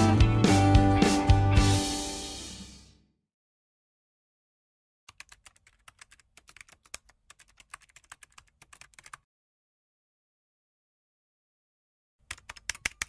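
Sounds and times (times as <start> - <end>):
fast keyboard typing: 5.1 - 9.2, 12.2 - 13.0.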